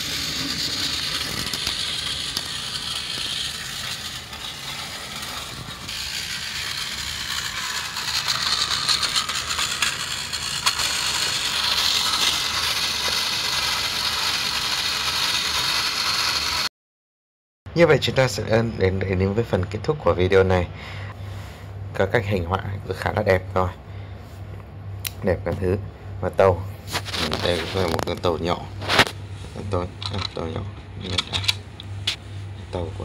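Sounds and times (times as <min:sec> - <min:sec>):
toy train motor whirring: 0:00.0 - 0:16.7.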